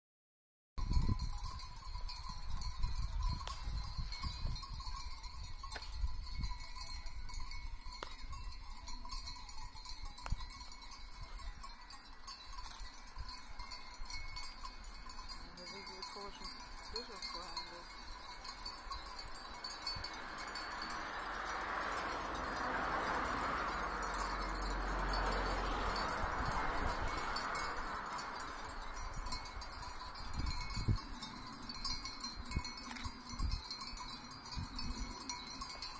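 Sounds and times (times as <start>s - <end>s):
sheep bells clinking: 0.8s - 35.9s.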